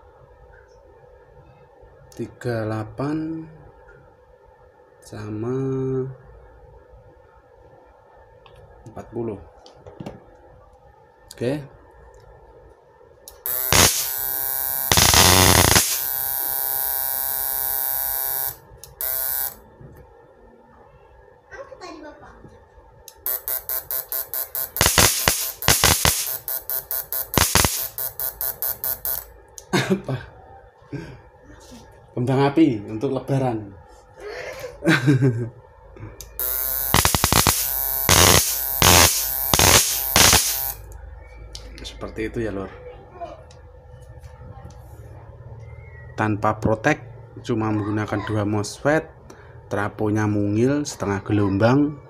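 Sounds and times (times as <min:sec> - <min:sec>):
electric arc buzzing: 0:13.3 - 0:19.6, 0:23.1 - 0:29.3, 0:36.2 - 0:40.9
electric arc crackling: 0:13.3 - 0:19.6, 0:23.1 - 0:29.3, 0:36.2 - 0:40.9.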